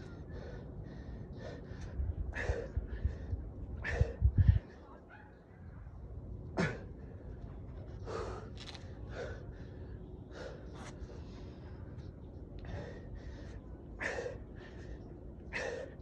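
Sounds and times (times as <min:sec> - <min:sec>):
man breathing hard and gasping: 0:00.2 - 0:04.7, 0:12.6 - 0:16.0.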